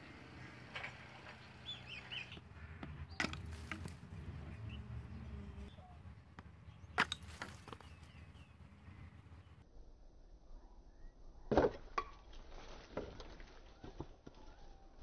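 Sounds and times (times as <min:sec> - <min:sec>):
small birds chirping: 0:00.0 - 0:09.6.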